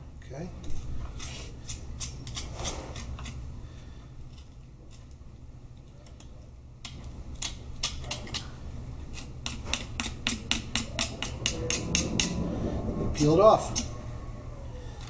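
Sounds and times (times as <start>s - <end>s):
low hum: 10.0s - 15.0s.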